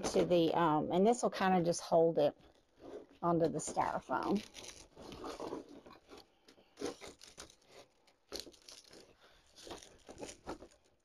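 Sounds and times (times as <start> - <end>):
fabric and twigs crackling: 4.1 - 6.2, 6.8 - 11.0
pin crunching into styrofoam: 4.4 - 11.0.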